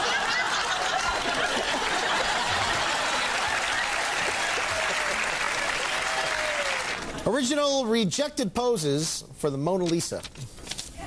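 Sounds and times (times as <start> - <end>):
audience laughing: 0.0 - 5.8
audience applauding: 0.0 - 7.3.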